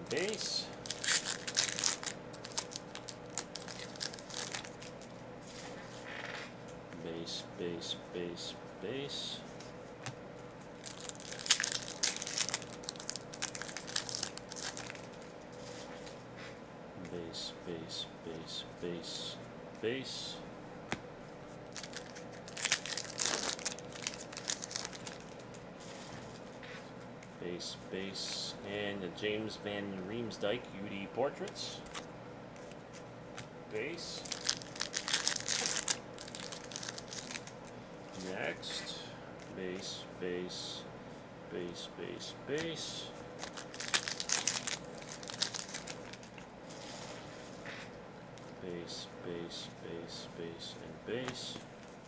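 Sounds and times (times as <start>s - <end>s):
foil wrappers crinkling: 0.0s - 6.1s, 10.7s - 16.2s, 21.6s - 26.6s, 34.1s - 38.3s, 43.4s - 47.7s.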